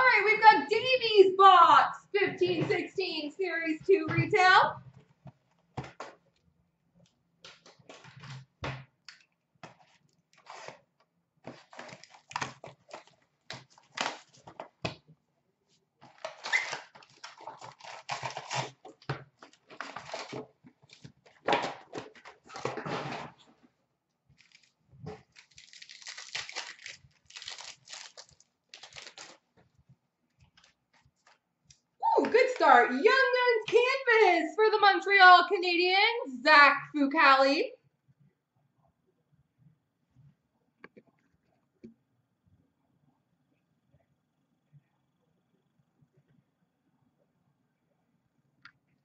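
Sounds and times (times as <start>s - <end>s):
rustling and card handling: 7.0s - 15.0s, 16.0s - 23.7s, 24.3s - 33.9s
foil packs ripping: 16.2s - 20.4s, 24.4s - 29.4s.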